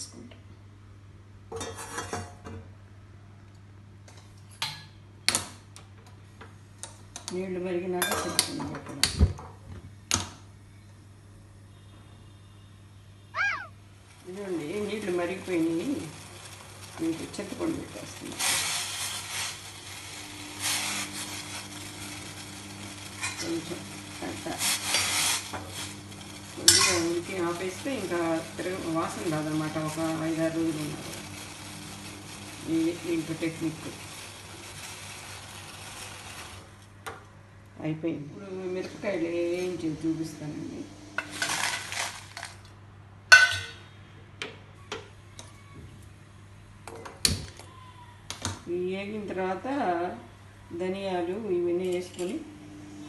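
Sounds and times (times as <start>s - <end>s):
water boiling and bubbling: 13.6s - 36.8s
dried chillies poured rustling: 14.2s - 36.8s, 41.3s - 42.7s.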